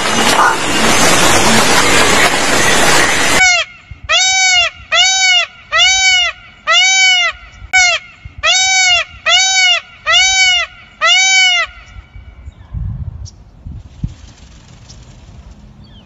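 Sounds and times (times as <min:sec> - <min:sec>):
peacock calling: 0:03.4 - 0:12.1.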